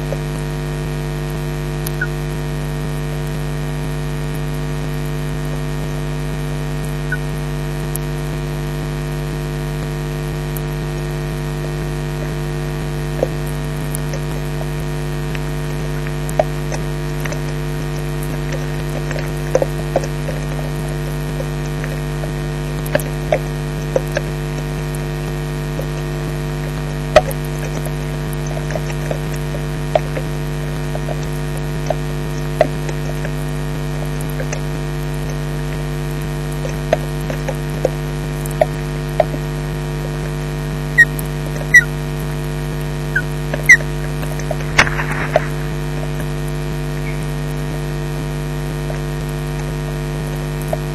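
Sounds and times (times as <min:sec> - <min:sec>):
electrical mains hum: 0:00.0 - 0:50.9
sharp clicks: 0:43.5 - 0:45.7.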